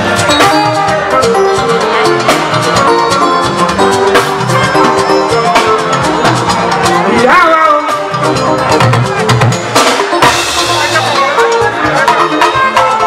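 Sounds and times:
drums and percussion: 0.0 - 13.0
held melodic notes: 0.0 - 13.0
person singing: 6.2 - 9.2.

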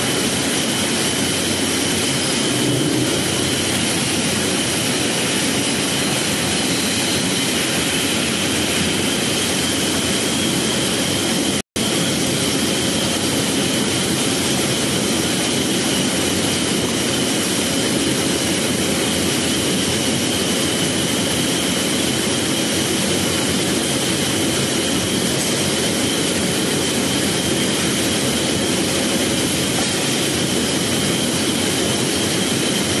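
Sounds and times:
machinery hiss: 0.0 - 16.6
high machine whine: 0.0 - 33.0.

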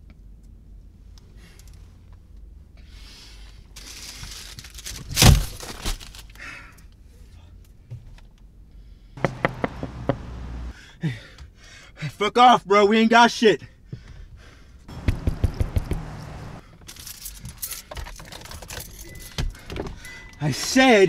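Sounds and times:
knocks on car window: 9.2 - 10.4, 14.9 - 16.4
car interior rumble: 9.2 - 10.8, 14.9 - 16.6.

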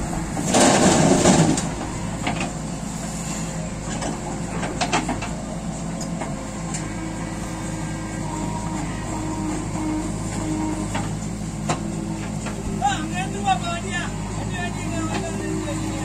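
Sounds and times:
diesel engines running: 0.0 - 16.0.

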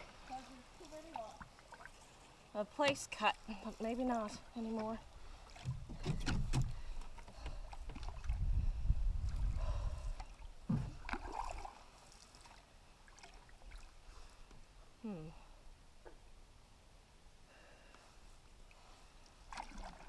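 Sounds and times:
canoe paddle strokes: 0.0 - 8.5, 9.2 - 14.8, 18.1 - 20.0
paddle knocking against hull: 5.5 - 8.3, 10.6 - 11.4.

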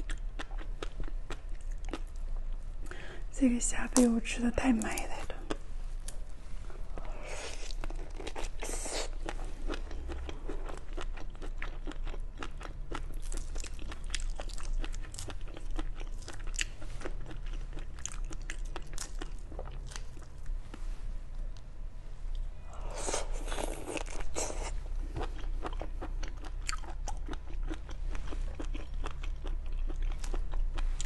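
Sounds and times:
chewing prawn: 6.9 - 20.9, 22.8 - 31.0.

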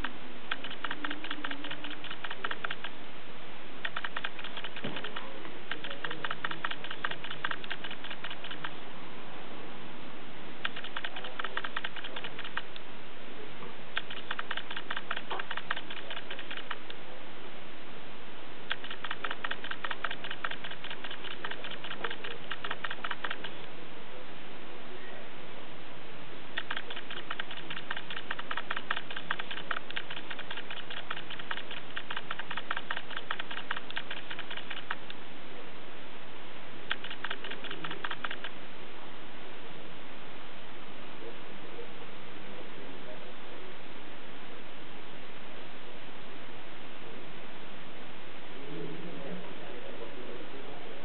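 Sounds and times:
light sharp clicks: 0.0 - 3.0, 3.8 - 8.8, 10.6 - 12.9, 14.0 - 17.0, 18.7 - 23.7, 26.6 - 35.2, 36.9 - 38.6
steady hiss: 0.0 - 51.0.

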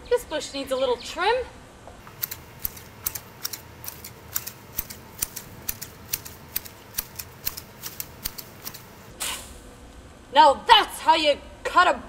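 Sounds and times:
hand shears snipping: 2.0 - 9.5.

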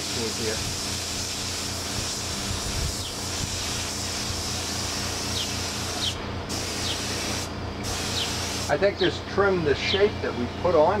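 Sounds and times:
paint spray gun hissing: 0.0 - 8.8.

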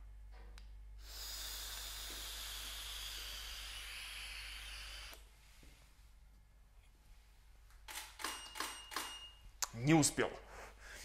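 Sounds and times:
breathy exhale hiss: 1.0 - 5.1.

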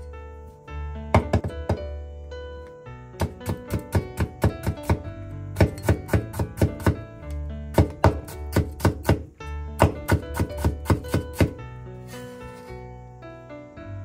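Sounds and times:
background music: 0.0 - 14.0
knife chopping on cutting board: 3.2 - 5.0, 5.6 - 7.0, 7.8 - 11.6
knife scraping board: 12.1 - 12.7.

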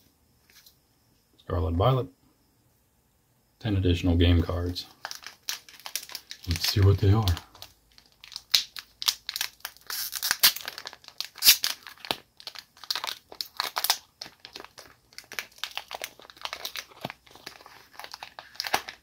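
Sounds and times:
foil wrapper crinkling and tearing: 4.9 - 19.0.

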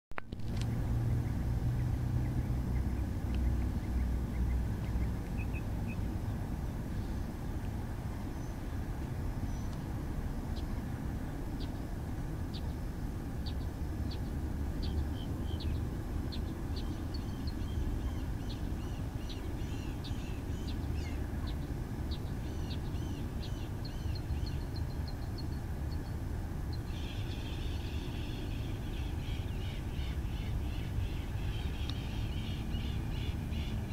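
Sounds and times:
steady low rumble: 0.2 - 33.9
small birds chirping: 0.6 - 33.9
loud bird call: 26.8 - 33.9.

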